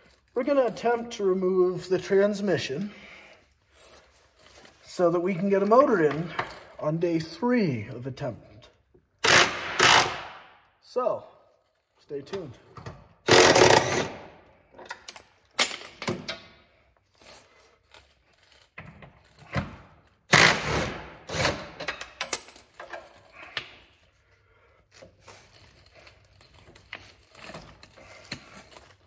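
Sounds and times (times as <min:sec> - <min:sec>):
impact wrench hammering bolts: 0:09.2 - 0:10.4, 0:12.8 - 0:14.2, 0:14.8 - 0:16.5, 0:19.6 - 0:23.0.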